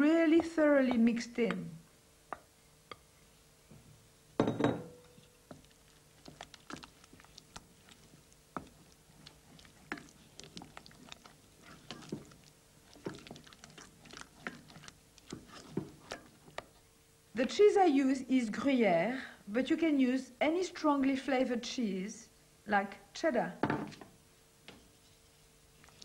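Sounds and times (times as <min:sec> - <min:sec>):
spoon stirring thick sauce: 0:05.1 - 0:16.8.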